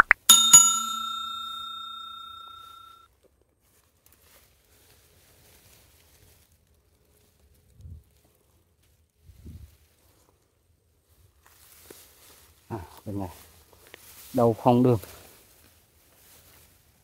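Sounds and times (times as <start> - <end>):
bell ringing: 0.3 - 3.0.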